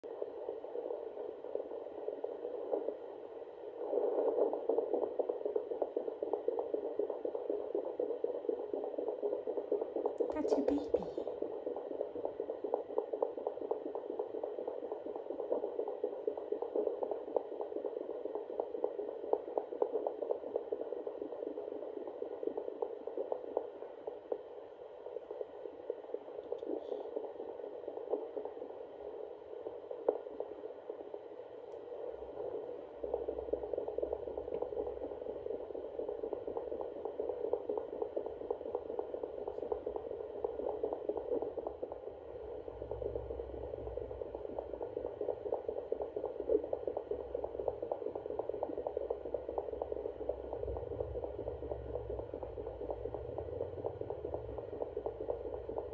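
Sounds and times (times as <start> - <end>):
pulsing heartbeat whoosh on doppler: 31.9 - 55.9.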